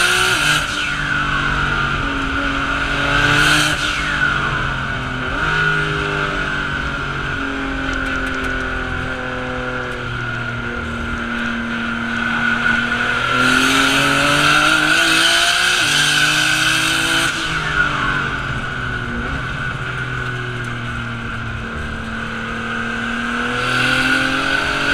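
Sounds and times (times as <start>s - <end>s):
race car engine high revs: 0.0s - 6.9s, 11.8s - 19.5s, 22.0s - 24.9s.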